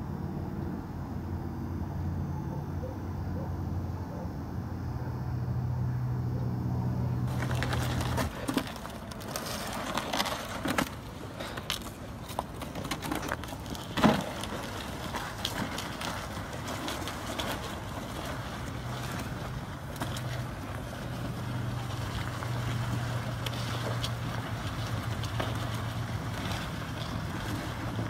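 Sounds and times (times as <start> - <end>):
low steady hum: 0.0 - 28.0
plastic sled scraping over ice: 7.3 - 28.0.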